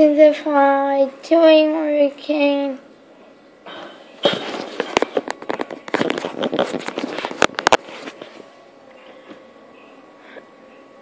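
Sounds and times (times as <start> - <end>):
microphone handling noise: 4.2 - 8.5.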